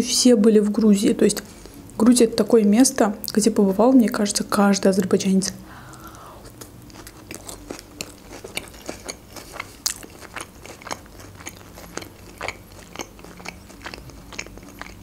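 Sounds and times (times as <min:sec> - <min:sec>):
chewing salad crunches: 0:06.4 - 0:15.0
wet mouth clicks: 0:08.0 - 0:15.0.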